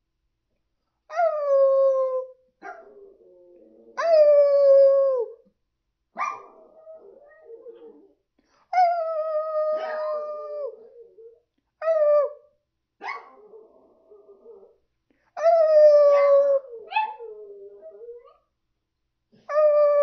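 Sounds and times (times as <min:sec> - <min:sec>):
dog yelping: 0:06.2 - 0:08.0, 0:09.8 - 0:10.2, 0:16.1 - 0:18.4
dog howling: 0:06.4 - 0:08.2, 0:09.0 - 0:12.4.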